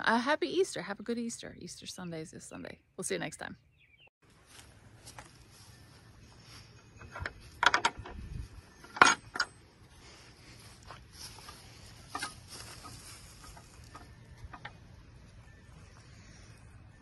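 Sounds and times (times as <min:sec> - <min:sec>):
metal gate hardware clinking: 0:08.8 - 0:09.7.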